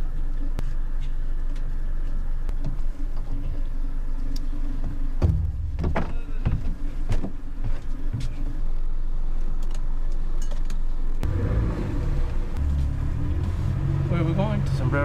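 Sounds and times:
low mechanical hum: 0.0 - 15.0
footsteps on boat deck: 4.8 - 8.8.

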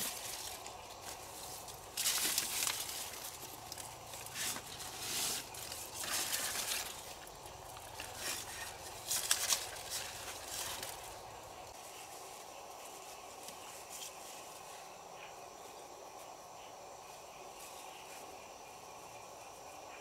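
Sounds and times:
leaves and stems rustling: 0.0 - 16.4.

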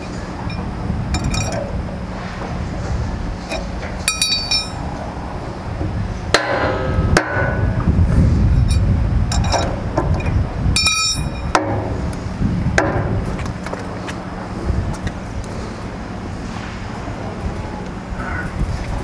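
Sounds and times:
steady low rumble: 0.0 - 19.0
steel bar clinking on metal: 4.1 - 4.8.

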